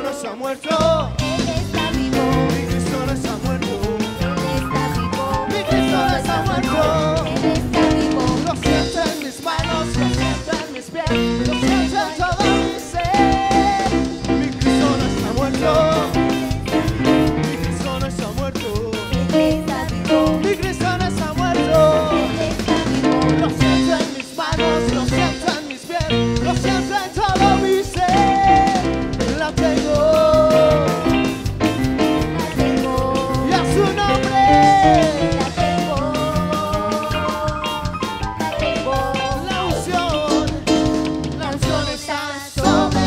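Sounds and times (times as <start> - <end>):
live band playing: 0.0 - 43.0
voices singing: 0.0 - 43.0.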